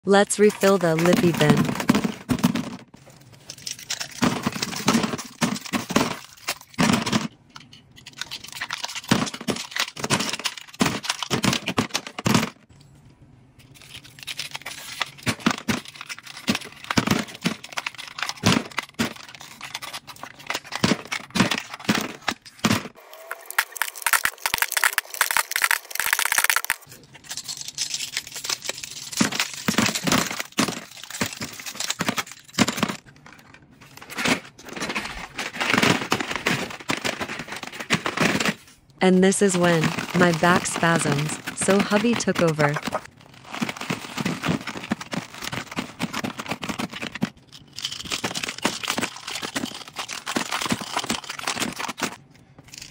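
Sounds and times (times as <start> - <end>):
plastic wrappers crinkling: 0.5 - 12.3, 13.6 - 52.9
plastic tubes clacking: 23.4 - 33.2.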